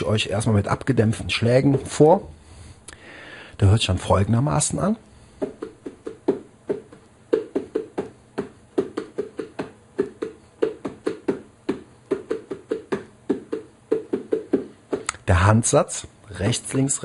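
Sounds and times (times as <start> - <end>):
bongos played by hand: 5.4 - 15.2.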